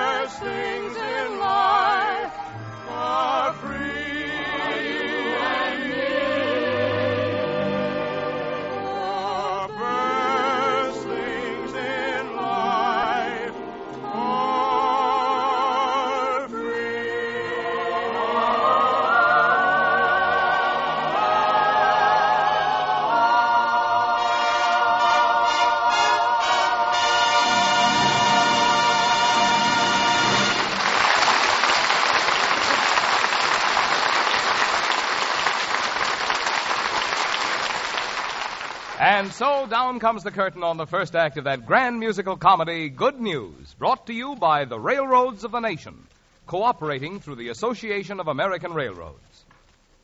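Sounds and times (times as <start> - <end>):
singers with heavy vibrato: 0.0 - 31.0
orchestra playing: 0.1 - 15.8, 17.8 - 31.2.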